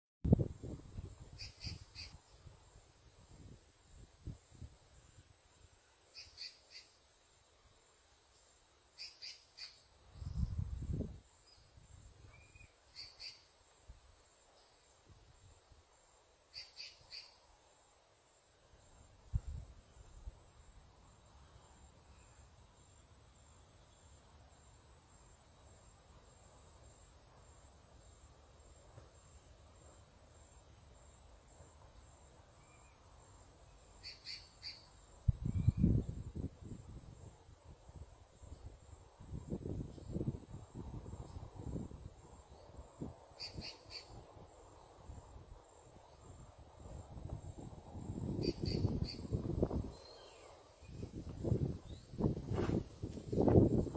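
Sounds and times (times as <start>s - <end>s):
high insect drone: 0.3s - 53.9s
steady high hiss: 0.3s - 53.9s
short bird chirps: 1.4s - 2.2s, 12.3s - 13.5s.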